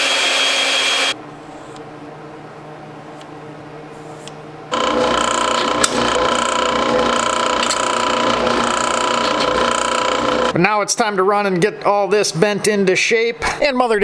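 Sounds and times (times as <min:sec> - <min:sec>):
drill press whine: 0:00.0 - 0:01.8, 0:04.2 - 0:10.6
drill bit clicking on metal: 0:04.7 - 0:10.5.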